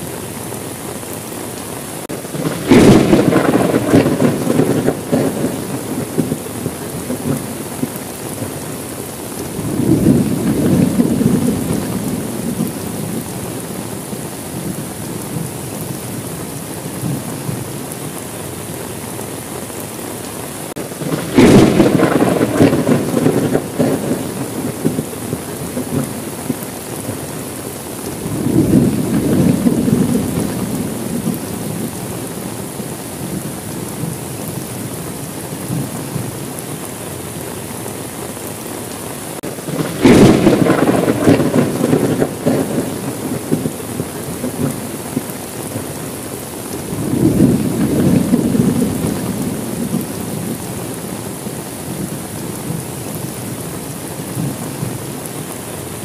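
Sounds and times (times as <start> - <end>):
heavy rain: 0.0 - 56.0
thunder rumbling: 1.7 - 20.1, 20.7 - 38.7, 39.3 - 56.0
sharp thunder crack: 2.1 - 8.5, 20.8 - 27.2, 28.2 - 31.9, 39.4 - 43.8, 46.9 - 50.6.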